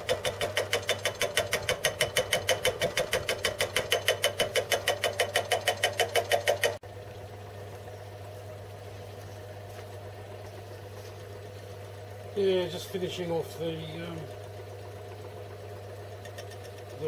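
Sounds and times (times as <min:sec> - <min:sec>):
rhythmic lathe clatter: 0:00.0 - 0:06.8, 0:16.1 - 0:17.0
lathe motor hum: 0:08.6 - 0:17.0.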